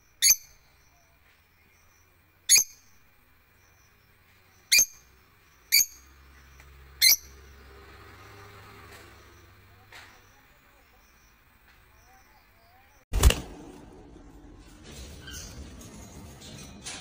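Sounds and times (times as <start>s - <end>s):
lovebirds chirping: 0.0s - 13.1s.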